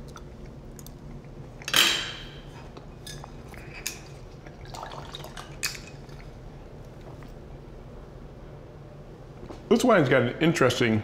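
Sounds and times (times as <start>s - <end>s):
cutlery clattering on plate: 1.6s - 2.2s
wine pouring into glass: 4.6s - 6.3s.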